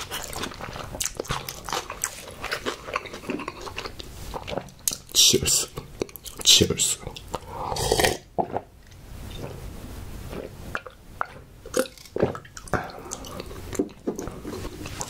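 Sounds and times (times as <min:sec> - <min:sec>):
man gulping water: 0:10.3 - 0:15.0.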